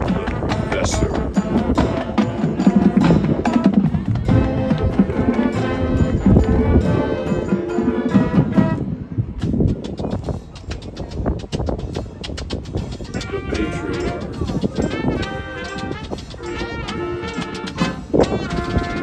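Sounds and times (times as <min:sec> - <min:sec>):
marching band playing: 0:00.0 - 0:10.4, 0:13.0 - 0:19.0
light clicking percussion: 0:09.4 - 0:19.0.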